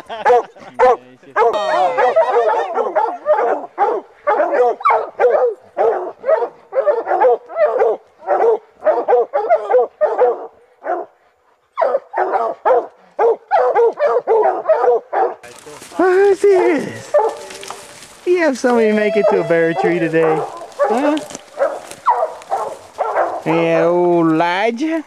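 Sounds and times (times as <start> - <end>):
hounds barking: 0.1 - 24.0.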